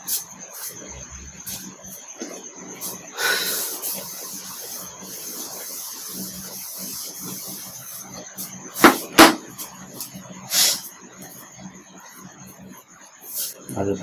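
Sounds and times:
eraser rubbing whiteboard: 2.8s - 9.7s, 13.2s - 13.7s
sharp knocks: 8.8s - 9.5s.

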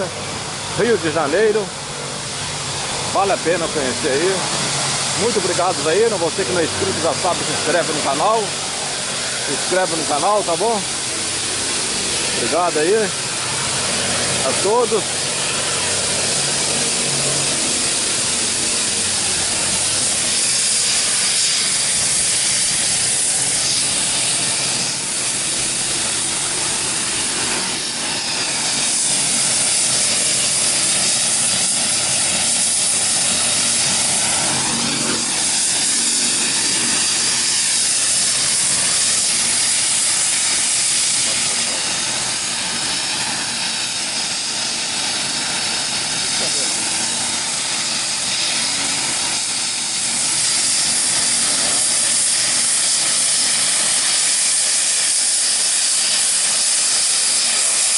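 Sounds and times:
faint high whine: 0.0s - 57.9s
helicopter engine hiss: 0.0s - 57.9s.

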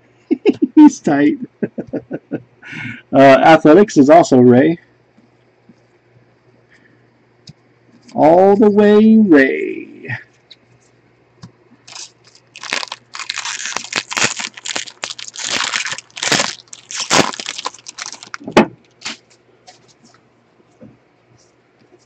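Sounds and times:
foil wrapper crinkling: 11.8s - 19.4s.

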